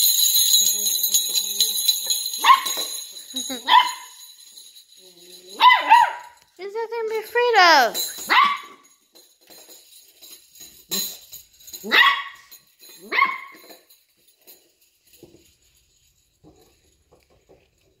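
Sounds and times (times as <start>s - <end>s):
bells jingling: 0.0s - 18.0s
puppy barking: 2.4s - 2.8s, 3.7s - 4.1s, 5.6s - 6.4s, 8.3s - 8.8s, 11.9s - 12.4s, 13.1s - 13.6s
puppy yelp: 5.6s - 6.3s, 8.2s - 8.8s, 11.8s - 12.4s, 13.0s - 13.6s.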